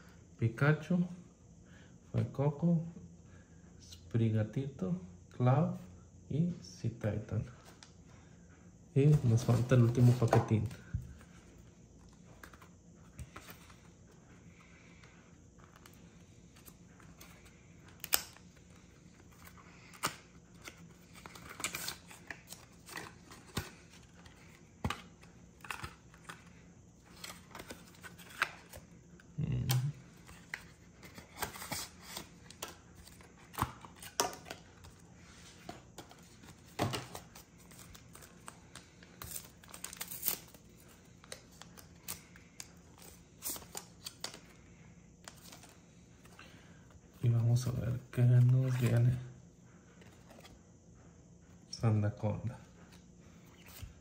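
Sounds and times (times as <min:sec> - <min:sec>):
card pack tearing: 0:18.0 - 0:26.5, 0:27.1 - 0:28.8, 0:36.0 - 0:44.4.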